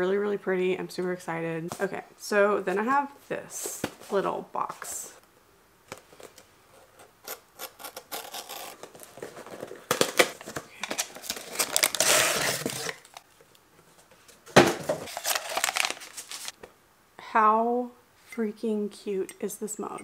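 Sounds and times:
cardboard scraping: 6.7 - 13.2
cardboard tearing and rustling: 7.3 - 13.2, 14.6 - 16.6.

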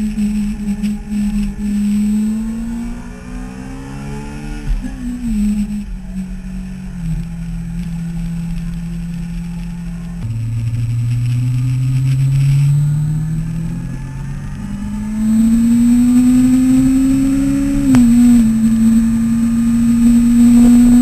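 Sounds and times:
louder lower engine note: 0.0 - 21.0
motorcycle engine accelerating: 0.0 - 21.0.

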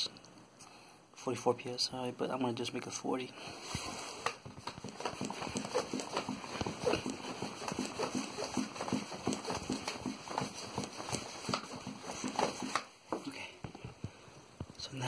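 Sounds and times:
foot pump strokes knocking: 3.7 - 14.2.

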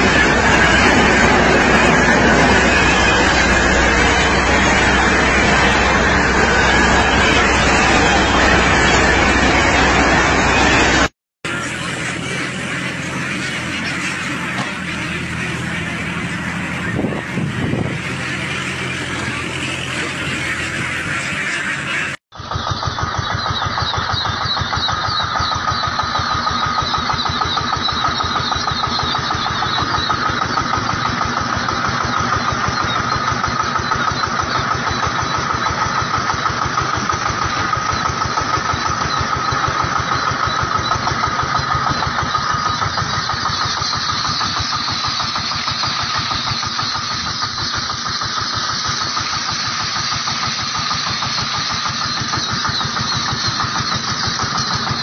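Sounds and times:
truck engine chugging: 0.0 - 55.0.

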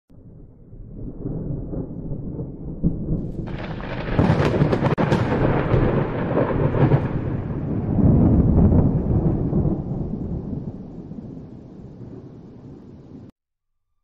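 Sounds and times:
thunder rumbling: 0.1 - 13.3
rain hissing: 3.2 - 13.3.

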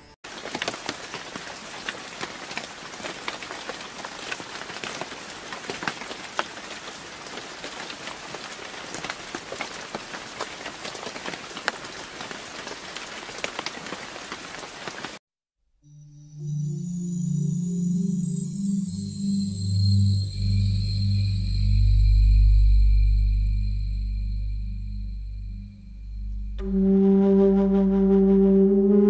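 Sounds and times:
rain on dead leaves: 0.3 - 15.2.

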